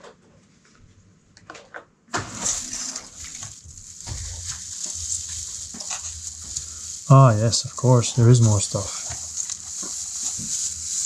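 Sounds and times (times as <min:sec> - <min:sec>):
crinkle paper rustling: 0:02.2 - 0:11.0.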